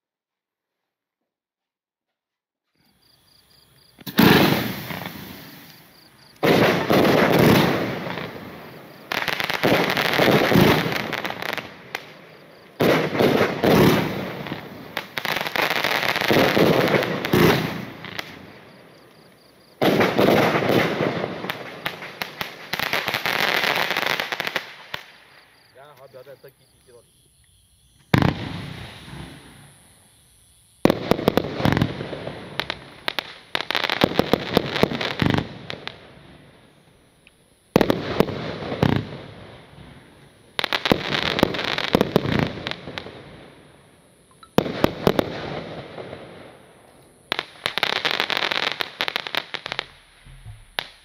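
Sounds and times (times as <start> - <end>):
firework crackle: 3.8 - 26.2, 28.0 - 37.0, 37.7 - 43.9, 44.6 - 51.0
firework launch and burst reports: 4.0 - 9.0, 28.2 - 29.7.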